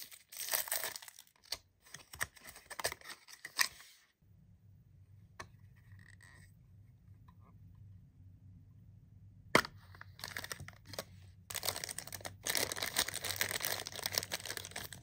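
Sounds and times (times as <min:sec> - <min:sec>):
plastic bag crinkling: 0:00.0 - 0:01.4, 0:10.2 - 0:15.0.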